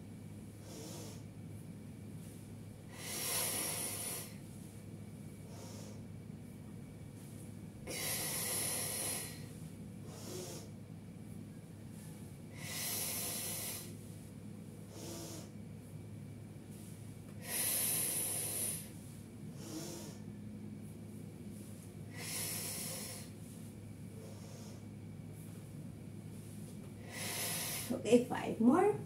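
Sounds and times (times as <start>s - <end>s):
woman breathing forcefully: 2.8s - 4.8s, 5.4s - 6.1s, 7.7s - 10.8s, 11.9s - 15.7s, 16.8s - 20.4s, 21.6s - 25.0s, 27.0s - 28.0s.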